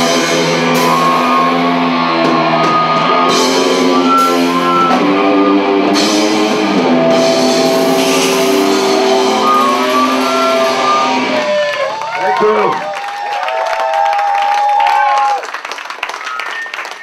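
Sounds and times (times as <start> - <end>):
drum kit with cymbals: 0.0 - 11.6
bass guitar chords: 0.0 - 12.3
distorted electric guitar: 0.0 - 12.8.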